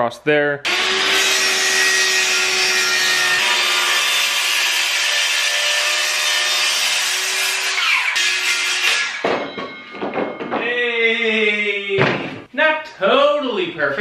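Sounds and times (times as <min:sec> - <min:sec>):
circular saw cutting wood: 0:00.6 - 0:09.2.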